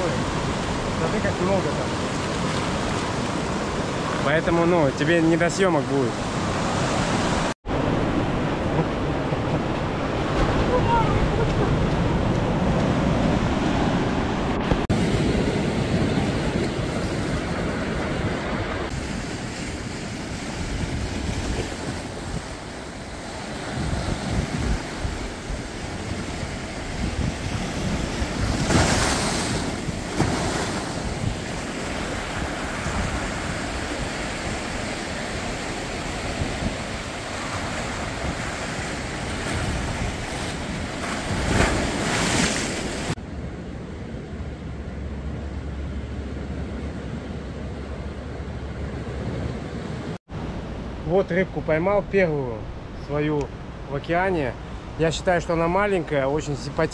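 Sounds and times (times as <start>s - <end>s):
surf washing over rocks: 0.0s - 43.2s
wind on microphone: 6.3s - 43.6s.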